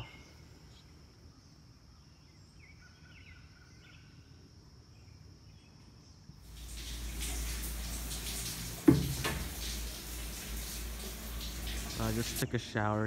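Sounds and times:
songbird chirps: 0.0 - 13.0
shower water running: 6.4 - 12.4.

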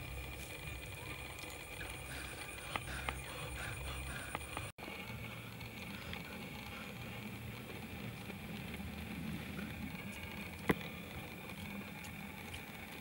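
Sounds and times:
outdoor background noise: 0.0 - 13.0
repeated calls: 1.1 - 4.7.

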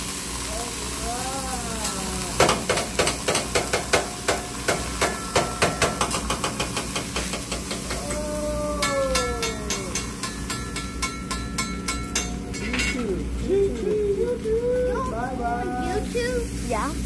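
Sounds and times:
spatula tapping on metal griddle: 2.3 - 13.0.

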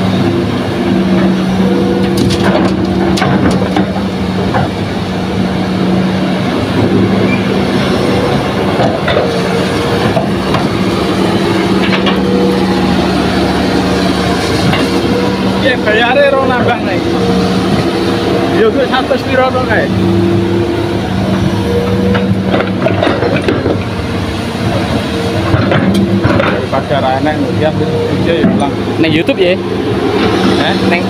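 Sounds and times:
excavator diesel engine droning: 0.0 - 31.0
knocks and clatter: 2.0 - 4.9, 8.6 - 12.4, 14.6 - 15.4, 21.3 - 27.4, 28.3 - 28.8.

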